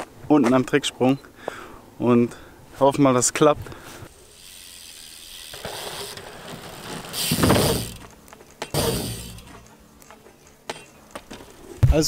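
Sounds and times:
bike tyre rolling on ramp: 4.1 - 9.7.

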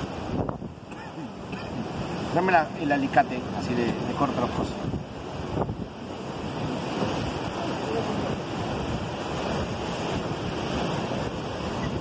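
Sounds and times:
wind buffeting microphone: 0.0 - 0.9, 3.4 - 12.0
sea surf: 0.0 - 12.0.

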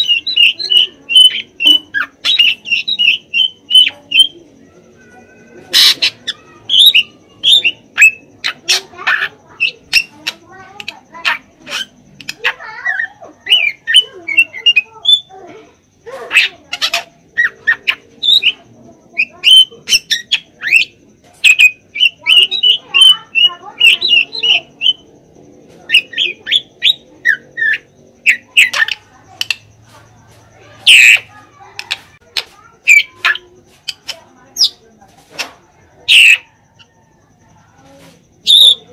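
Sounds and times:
bird singing whistled notes: 0.0 - 8.3, 19.2 - 25.1, 38.4 - 38.9.

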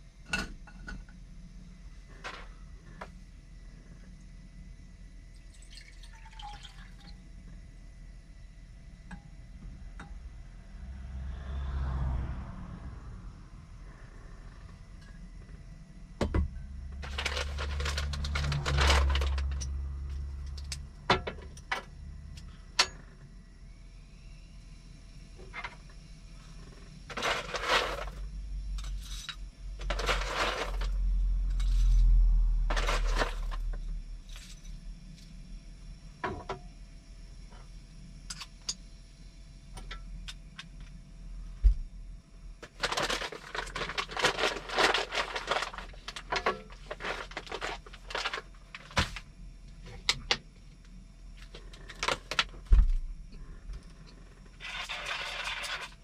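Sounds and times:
plastic wrapper crinkling: 42.8 - 48.9.

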